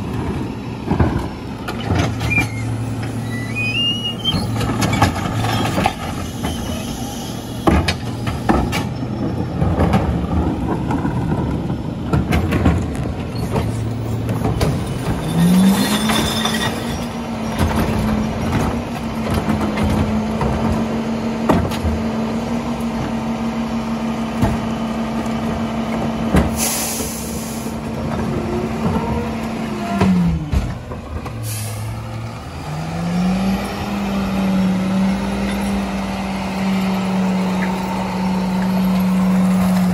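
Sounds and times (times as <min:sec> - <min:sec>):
diesel truck engine: 0:00.0 - 0:39.9
sharp air hisses: 0:26.6 - 0:27.8.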